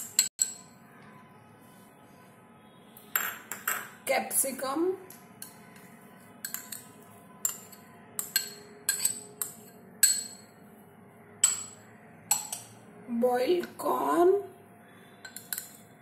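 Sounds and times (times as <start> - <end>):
metal spoon clinking on ceramic bowl: 0.0 - 0.7, 5.4 - 10.5, 11.4 - 12.8, 15.2 - 15.9.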